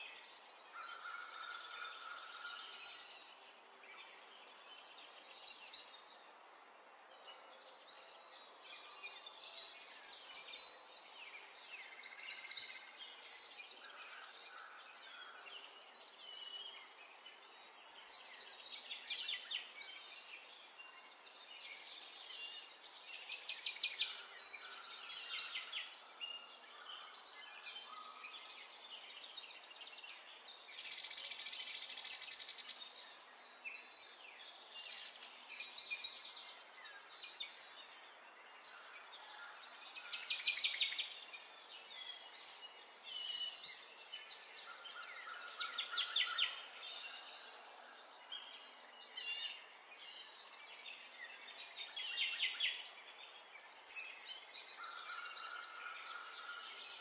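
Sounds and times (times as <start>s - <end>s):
birds chirping and singing: 0.0s - 57.0s.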